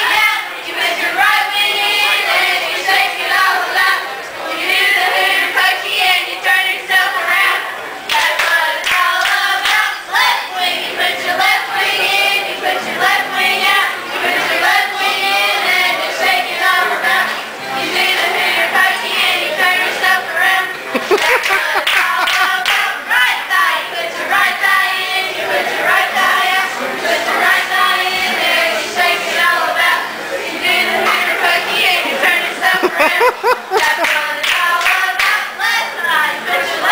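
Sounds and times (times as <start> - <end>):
group singing a celebration song: 0.0 - 36.9
hand clapping: 21.0 - 22.9, 33.8 - 35.4.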